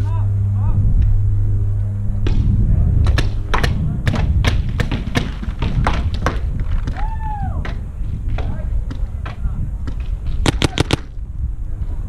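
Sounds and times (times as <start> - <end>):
low hum: 0.0 - 12.0
paintball gun pops: 9.9 - 11.1.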